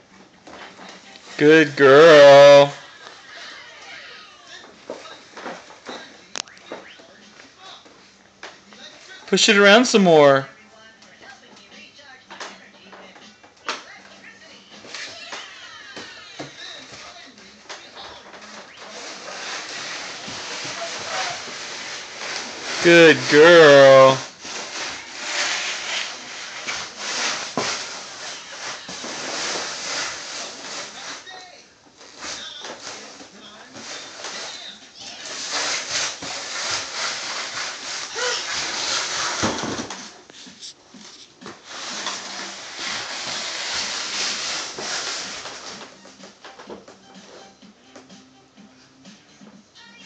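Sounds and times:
cardboard box scraping on floor: 18.8 - 31.3, 32.0 - 45.9.

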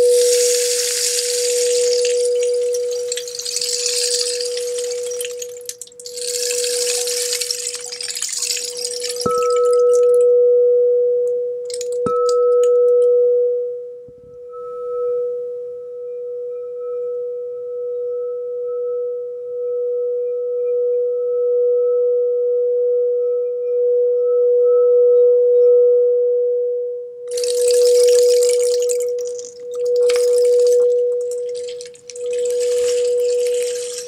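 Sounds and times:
crystal singing bowl ringing: 0.0 - 10.1, 27.3 - 34.0
rain stick rattle: 0.0 - 10.2, 11.7 - 12.6, 27.3 - 34.0.

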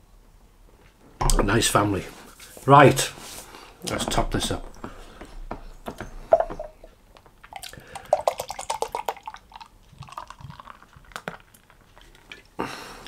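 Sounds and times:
beer pouring into a glass: 7.5 - 12.5.

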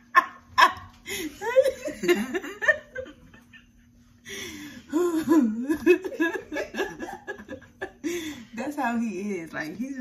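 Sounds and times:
woman laughing: 0.0 - 8.5.

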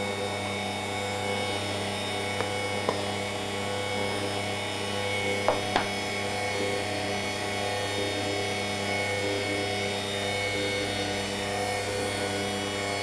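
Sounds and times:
stand mixer running: 0.0 - 8.0.

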